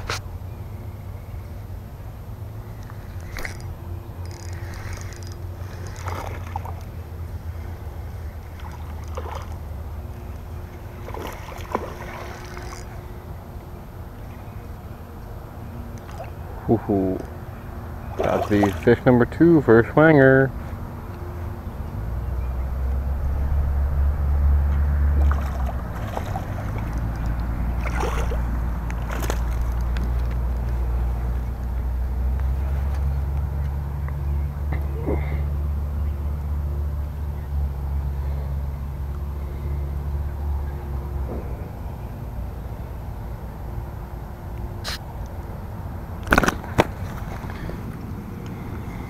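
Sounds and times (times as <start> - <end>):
wind rumble on microphone: 0.0 - 35.0
fish splashing: 2.6 - 13.4, 15.7 - 19.3, 22.0 - 31.6, 46.2 - 49.0.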